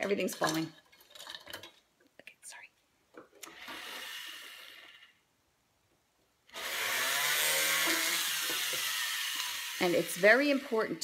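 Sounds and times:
rotary drill motor whine: 3.5 - 5.1, 6.5 - 11.0.

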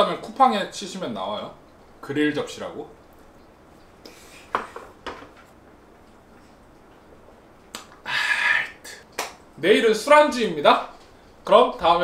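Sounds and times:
breathy exhale: 8.0 - 9.0.

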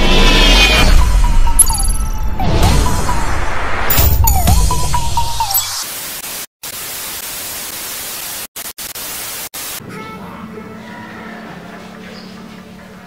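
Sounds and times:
television static hiss: 5.8 - 10.0.

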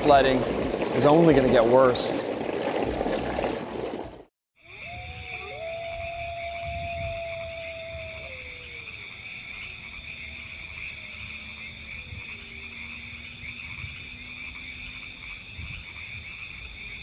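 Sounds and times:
frogs trilling: 4.6 - 17.0.

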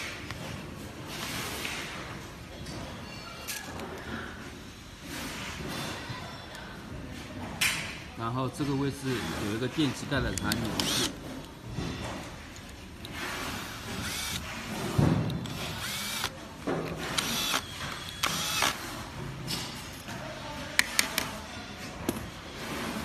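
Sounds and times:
cordless drill spinning in bursts: 10.8 - 11.1, 13.6 - 14.5, 15.5 - 16.3, 17.1 - 18.8.

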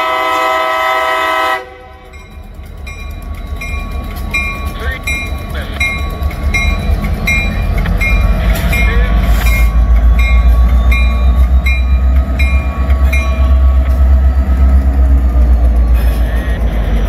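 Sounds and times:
diesel locomotives rumbling: 0.0 - 17.0
crossing signal bell dinging: 2.0 - 14.2.

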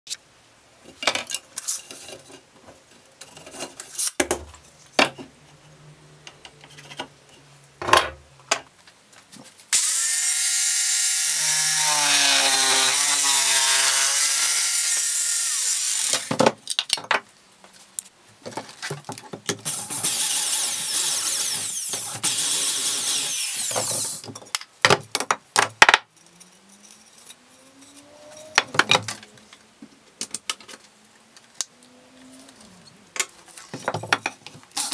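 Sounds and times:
jigsaw cutting wood: 9.8 - 16.3, 19.7 - 24.1
short rising whine: 27.4 - 29.3.

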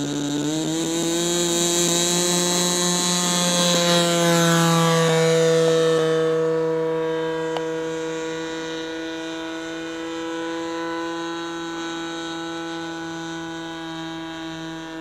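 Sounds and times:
model airplane engine drone: 0.0 - 15.0.

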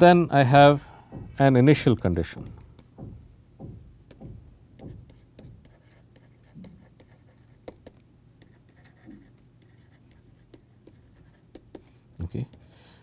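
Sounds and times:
stylus tapping on pen tablet: 1.1 - 12.7.

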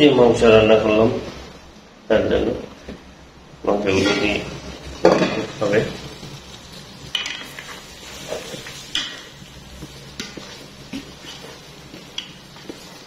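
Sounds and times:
spoon stirring in metal pot: 4.0 - 13.0.

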